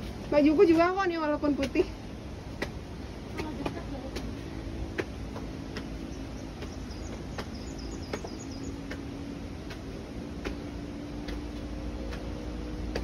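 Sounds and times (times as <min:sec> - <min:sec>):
steady low hum: 0:00.0 - 0:13.0
faint high chirps: 0:06.0 - 0:08.8.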